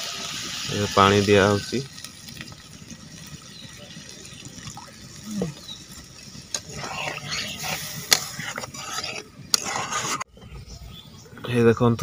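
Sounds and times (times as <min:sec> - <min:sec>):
metal spatula scraping in a wok: 0:06.6 - 0:10.3.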